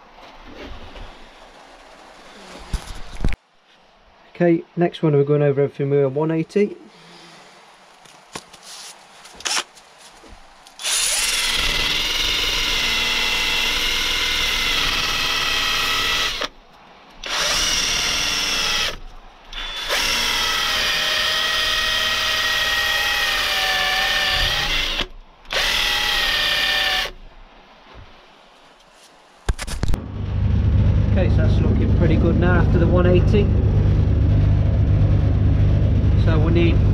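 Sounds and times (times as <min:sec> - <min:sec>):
drill motor whining while sanding: 0:10.8 - 0:16.5, 0:17.2 - 0:27.1.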